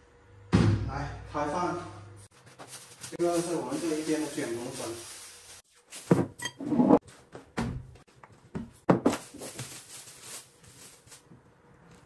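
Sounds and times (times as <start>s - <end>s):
plastic bags rustling: 2.4s - 6.2s, 8.9s - 12.0s.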